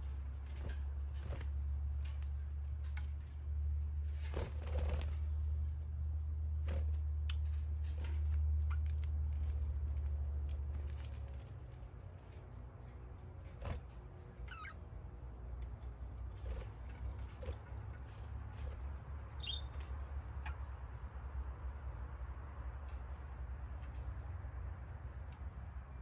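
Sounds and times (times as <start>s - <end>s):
small clicks and scratches: 6.7s - 14.7s
budgerigars chirping: 19.4s - 19.8s.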